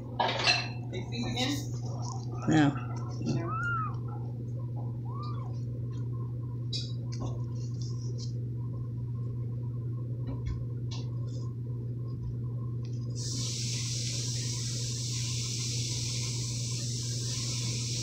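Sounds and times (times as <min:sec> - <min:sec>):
low hum: 0:00.0 - 0:15.5
steady hiss: 0:13.2 - 0:18.0.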